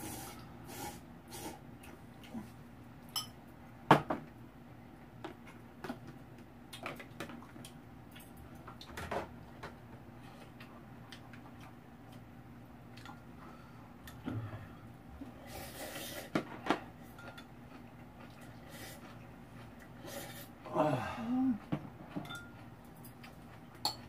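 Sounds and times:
utensils clinking against a bowl: 17.0s - 17.5s, 22.1s - 22.7s.

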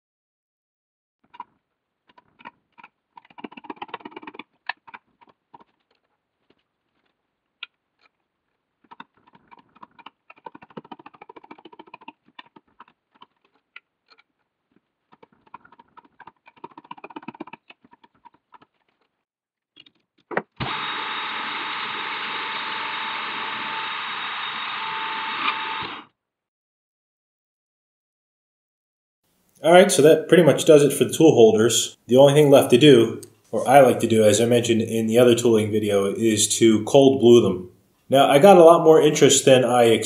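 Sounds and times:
metal lathe humming and whining: 20.6s - 26.1s.

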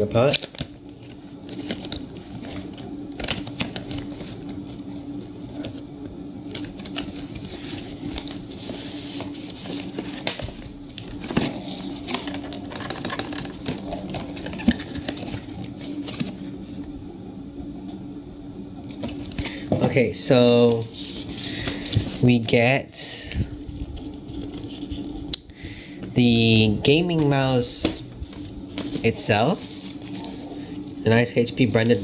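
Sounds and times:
plastic wrap rustling: 0.0s - 16.8s, 18.9s - 22.6s, 23.5s - 25.3s, 26.3s - 32.0s
paper scraping: 6.5s - 16.8s, 20.5s - 22.5s, 23.6s - 25.3s, 26.4s - 32.0s.

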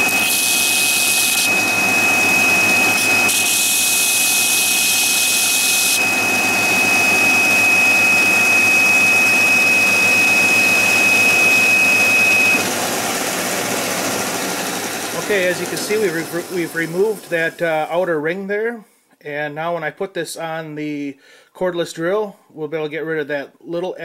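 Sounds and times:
belt sander whining: 0.0s - 17.7s
wood hissing against sanding belt: 10.4s - 17.6s.

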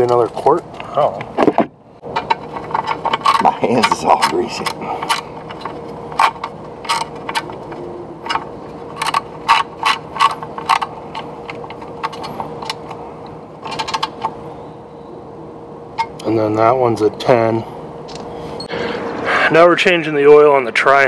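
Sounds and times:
socket ratchet clicking: 2.1s - 13.0s, 13.6s - 14.4s.

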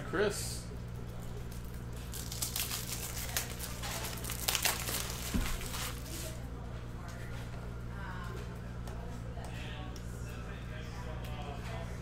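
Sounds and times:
steady low hum: 0.0s - 12.0s
wrapper crinkling and tearing: 1.4s - 6.4s.

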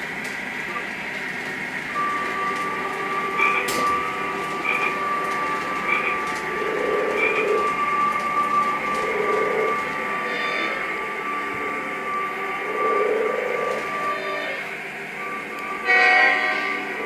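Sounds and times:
model train rumbling on track: 0.0s - 17.0s
thin constant whine: 0.0s - 17.0s.

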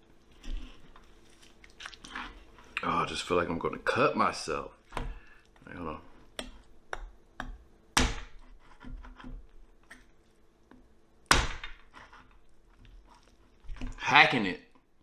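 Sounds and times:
knife chopping on cutting board: 6.4s - 9.5s.

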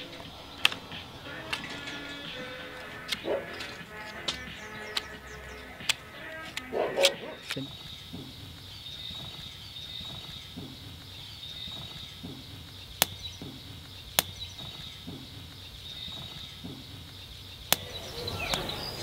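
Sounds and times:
sharp cracks: 0.0s - 19.0s.

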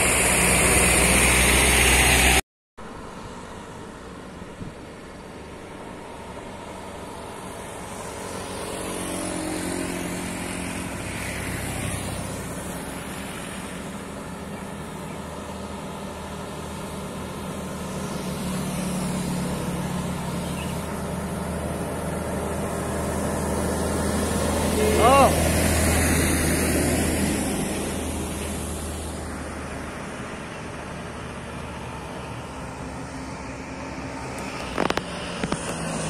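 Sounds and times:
small motorcycle engines passing: 5.1s - 36.0s
heavy truck diesel engine droning: 10.3s - 35.8s.

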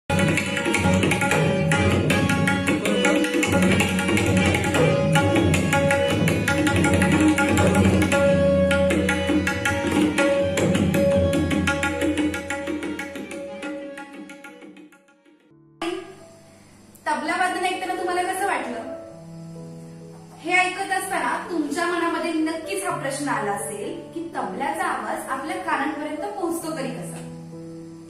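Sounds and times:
fast tabla drumming: 0.1s - 15.2s.

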